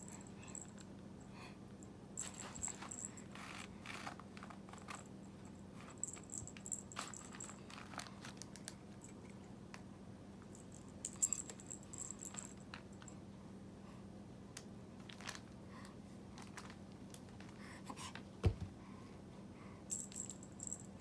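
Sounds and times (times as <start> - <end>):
faint low hum: 0.0 - 21.0
rustling and crinkling of bags: 5.9 - 8.8, 15.0 - 15.5, 16.3 - 17.6.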